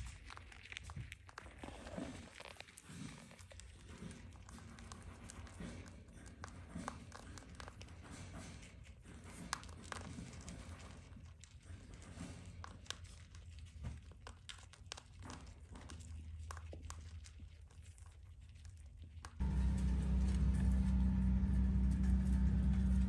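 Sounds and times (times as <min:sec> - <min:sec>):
rabbits nibbling clicks: 0:00.0 - 0:21.3
low steady hum: 0:19.2 - 0:23.0.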